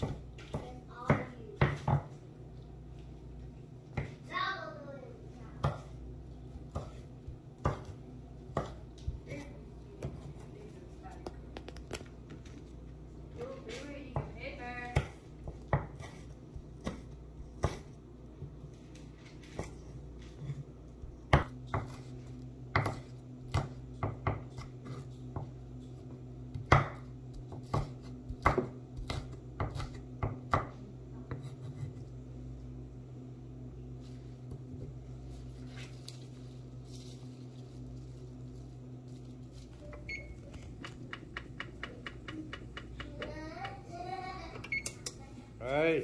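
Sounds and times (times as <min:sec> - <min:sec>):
steady low hum: 0:00.0 - 0:46.0
knife chopping on wooden block: 0:07.6 - 0:08.8, 0:22.7 - 0:25.5, 0:26.5 - 0:32.0.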